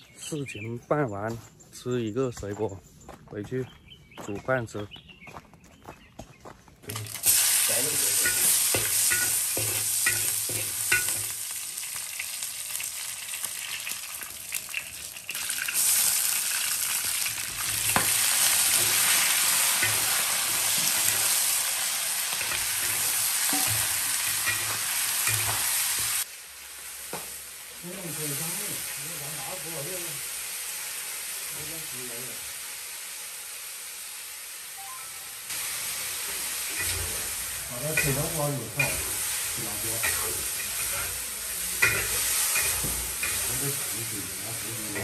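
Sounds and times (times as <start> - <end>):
meat sizzling in a wok: 6.9 - 45.0
metal spatula scraping a pan: 7.3 - 11.4, 17.6 - 21.4, 22.3 - 26.2, 36.3 - 44.0.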